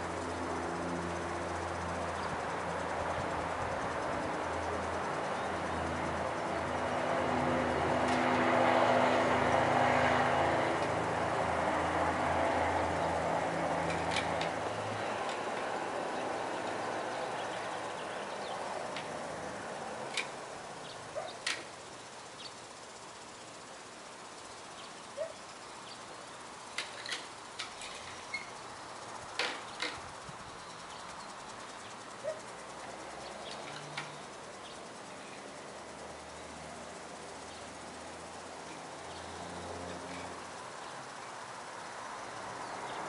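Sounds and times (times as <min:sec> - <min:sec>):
car passing: 0:00.0 - 0:25.3, 0:31.4 - 0:43.0
bird chirps: 0:20.8 - 0:22.6.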